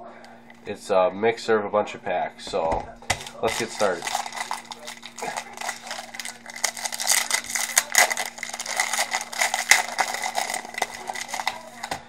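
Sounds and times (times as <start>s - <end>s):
foil wrapper crinkling: 3.1s - 12.0s.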